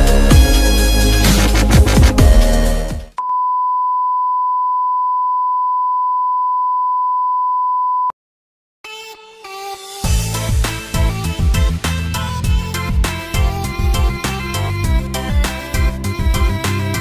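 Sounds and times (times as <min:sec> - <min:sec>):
electronic dance music: 0:00.0 - 0:03.1
steady beep: 0:03.2 - 0:08.1.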